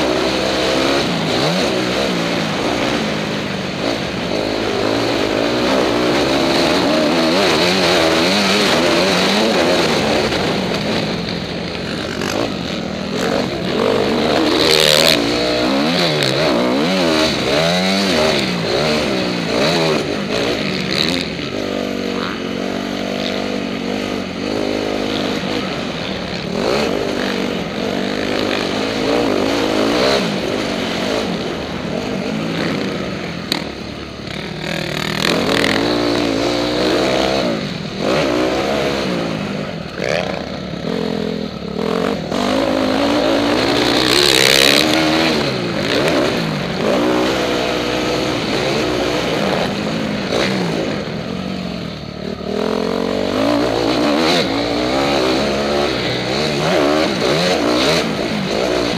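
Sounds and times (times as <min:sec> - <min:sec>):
loud rush of noise: 0:00.0 - 0:58.9
motocross bike engine revving: 0:00.0 - 0:58.9.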